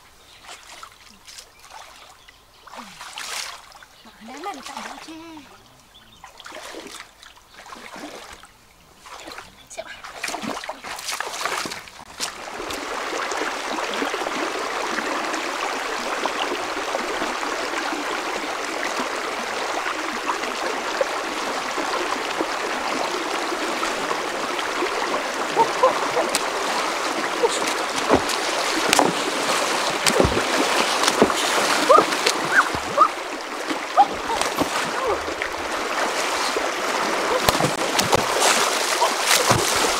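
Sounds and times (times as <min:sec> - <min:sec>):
wading splashes and knocks: 0:00.4 - 0:05.2, 0:06.2 - 0:39.9
pole splashing in muddy water: 0:06.3 - 0:08.4, 0:10.0 - 0:39.9
rocky river rushing: 0:12.3 - 0:39.9.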